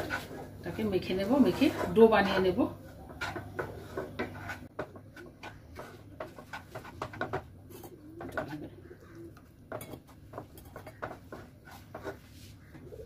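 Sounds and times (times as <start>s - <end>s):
wooden spatula scraping a pan: 0.0s - 8.7s, 9.7s - 13.0s
bird cooing: 7.7s - 9.5s, 12.7s - 13.0s.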